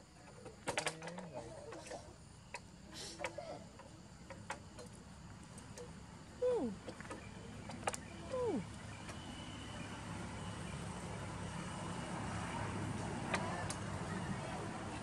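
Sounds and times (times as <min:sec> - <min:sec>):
clicks and rattles on wire mesh: 0:00.2 - 0:02.6.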